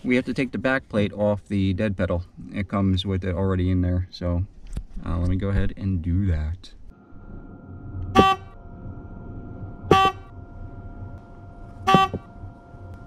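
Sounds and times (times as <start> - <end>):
faint steady tone: 6.6 - 13.0
car warning chime: 9.6 - 13.0.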